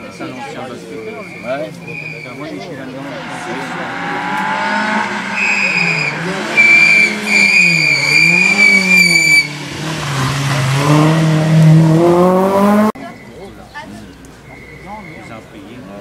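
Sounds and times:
tyres squealing: 1.0 - 11.3
rally car engine revving: 2.6 - 13.0.

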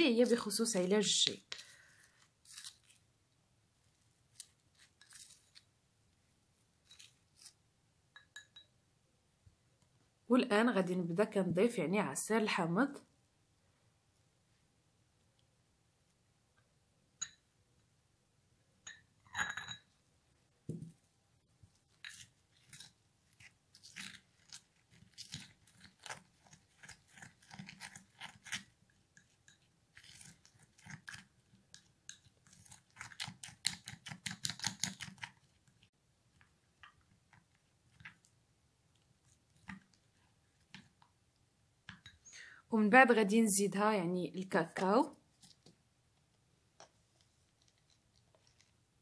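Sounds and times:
plastic spoon scraping glass bowl: 4.3 - 5.7, 21.8 - 35.5.

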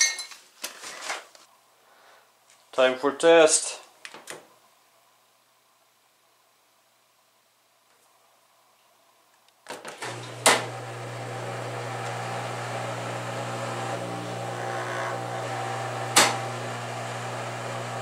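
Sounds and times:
washing machine humming: 9.9 - 18.0.

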